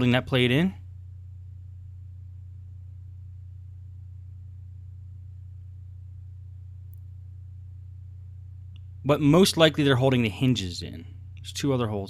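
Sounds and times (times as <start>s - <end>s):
low electrical hum: 0.0s - 12.0s
faint click: 8.7s - 9.0s.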